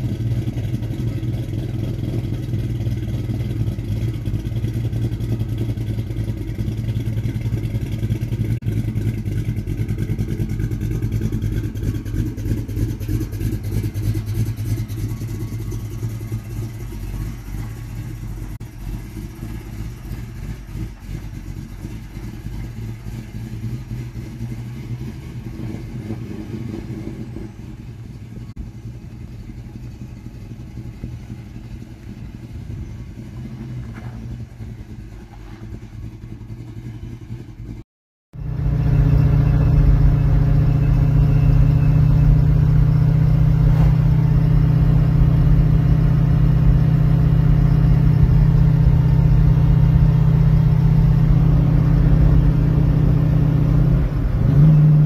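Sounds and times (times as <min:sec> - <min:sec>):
car engine driving away: 0:00.0 - 0:37.8, 0:38.4 - 0:55.0
engine drone inside car cabin: 0:38.3 - 0:55.0.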